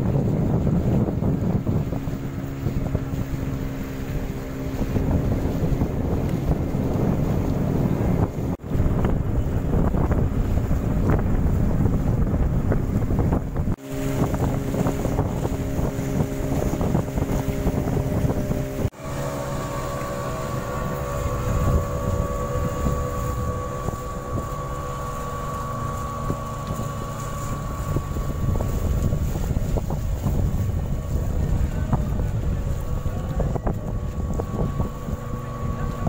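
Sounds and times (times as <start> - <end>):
boat engine running: 0.0 - 36.0
water rushing along hull: 0.0 - 36.0
wind buffeting microphone: 0.0 - 36.0.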